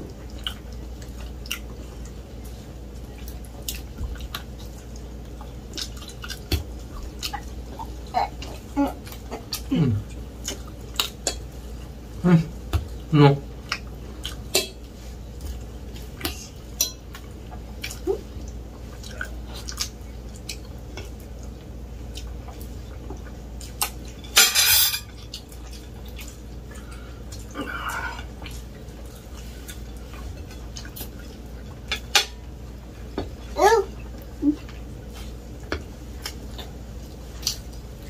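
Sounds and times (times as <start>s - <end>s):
fork clinking and scraping on plates: 24.2s - 25.1s.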